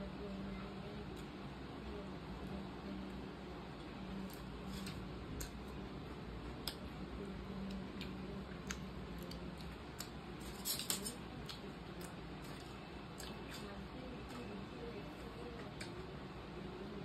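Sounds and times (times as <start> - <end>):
aluminium foil crinkling: 10.4 - 11.2.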